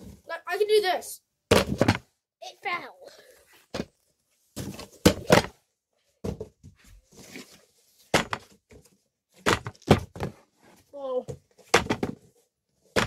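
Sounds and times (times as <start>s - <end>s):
objects thumping and knocking: 1.5s - 2.2s, 3.7s - 5.6s, 6.2s - 13.0s.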